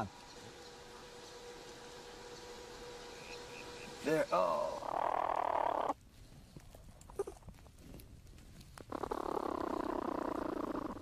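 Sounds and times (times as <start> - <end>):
platypuses churring: 3.2 - 6.0.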